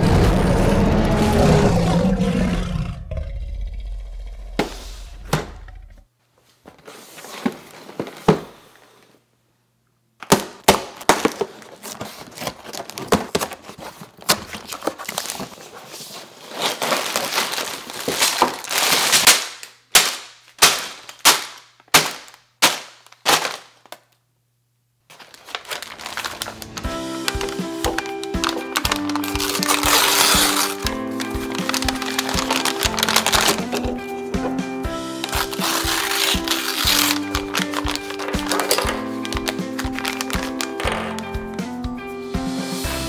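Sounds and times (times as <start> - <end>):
paper bags crinkling: 10.8 - 24.2, 25.1 - 34.6, 35.2 - 41.6
cardboard box ripping: 25.1 - 34.0, 35.2 - 40.8
background music: 25.8 - 43.0.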